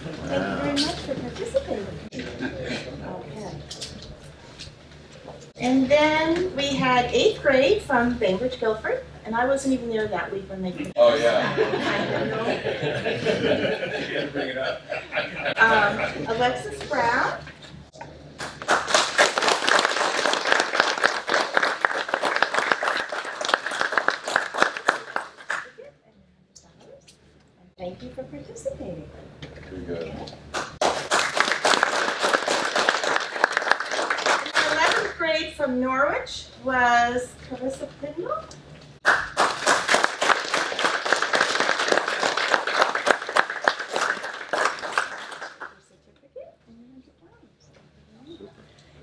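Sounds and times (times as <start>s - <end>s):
people clapping: 18.3s - 25.9s, 30.5s - 35.2s, 39.0s - 45.9s
people applauding: 18.4s - 25.9s, 30.5s - 35.2s, 39.0s - 45.8s.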